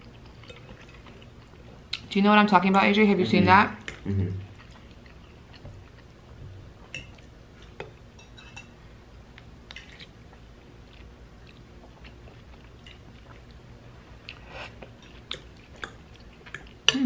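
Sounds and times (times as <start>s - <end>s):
chewing spaghetti: 3.8s - 7.8s, 9.4s - 13.6s, 14.2s - 17.0s.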